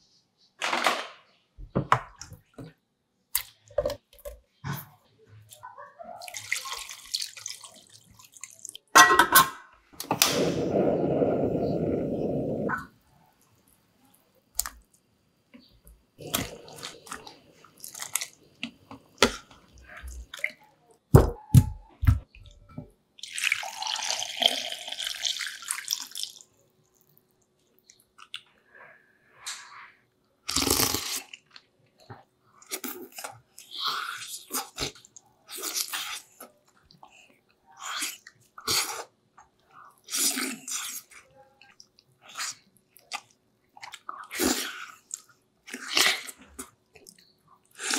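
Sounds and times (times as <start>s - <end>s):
liquid pouring: 23.2s - 26.4s.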